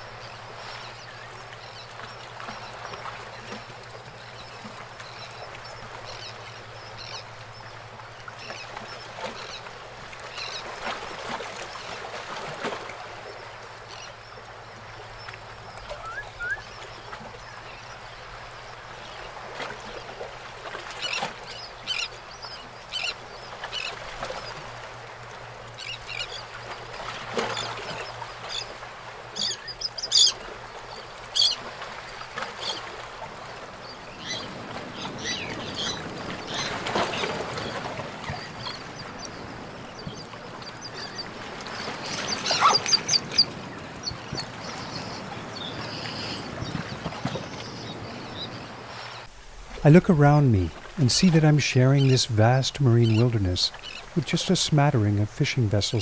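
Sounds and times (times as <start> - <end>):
seabird calls: 0.0 - 56.0
water lapping: 0.0 - 56.0
kayak paddle strokes splashing: 34.5 - 56.0.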